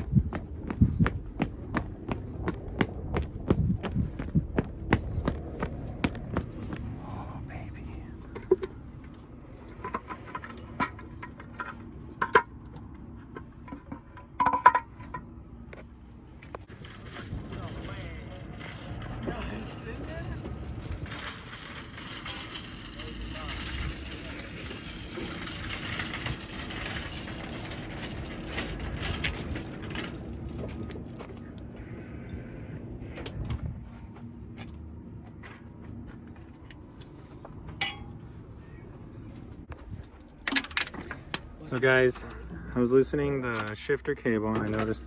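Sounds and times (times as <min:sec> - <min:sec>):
wind buffeting microphone: 0:00.0 - 0:10.2, 0:16.6 - 0:34.6
shopping cart rattling over pavement: 0:16.7 - 0:30.6
sharp metal knocks: 0:37.7 - 0:38.2
metal tools clicking and clinking: 0:40.4 - 0:41.9.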